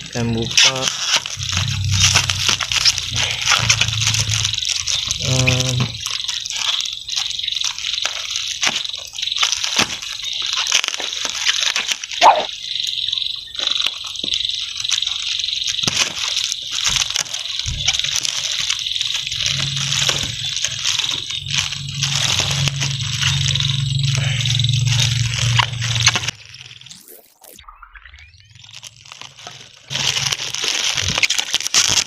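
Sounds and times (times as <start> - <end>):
plastic crinkling and rustling: 0.0 - 12.3, 13.6 - 27.6, 28.6 - 32.0
scissors snipping plastic bag: 15.8 - 23.4, 29.0 - 32.0
low hum: 19.1 - 31.2.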